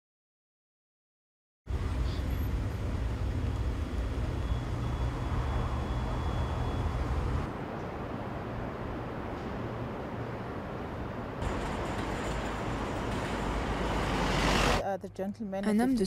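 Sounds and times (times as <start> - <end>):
hiss of distant vehicles: 1.7 - 14.8
road traffic rumble: 1.7 - 15.6.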